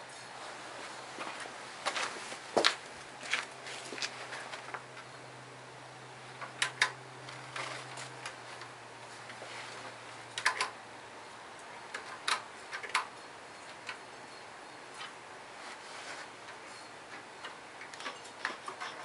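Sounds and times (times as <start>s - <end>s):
clicks and knocks of controls: 6.4s - 8.7s, 10.4s - 10.8s.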